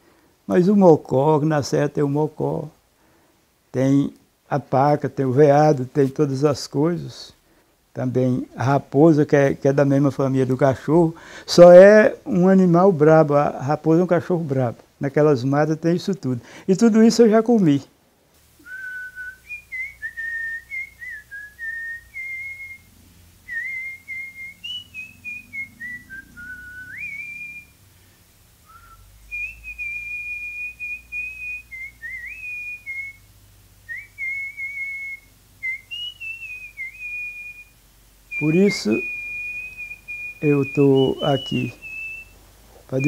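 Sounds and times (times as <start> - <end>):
person whistling a melody: 18.6 - 22.9, 23.5 - 27.8, 28.7 - 33.2, 33.9 - 37.7, 38.3 - 42.3.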